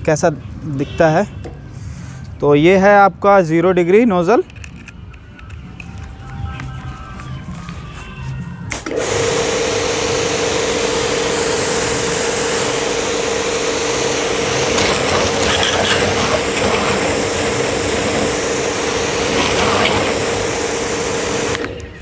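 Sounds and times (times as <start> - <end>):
pressure washer motor humming: 8.7 - 21.8
loud hiss of water jet: 11.2 - 21.6.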